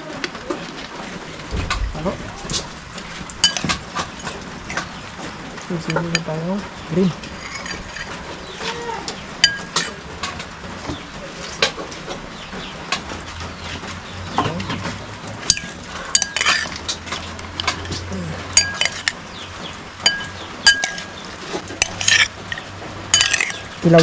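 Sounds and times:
spoon clinking against bowl: 3.4s - 3.8s, 9.4s - 10.0s, 15.5s - 16.9s, 17.6s - 19.2s, 20.0s - 23.8s.

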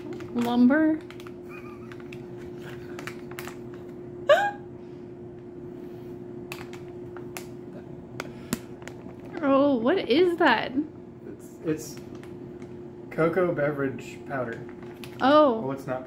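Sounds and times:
steady electrical hum: 0.0s - 16.0s.

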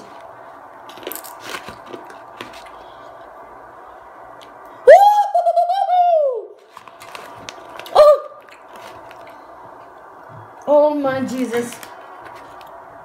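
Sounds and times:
high wavering vocal cry: 4.8s - 6.6s, 7.9s - 8.4s.

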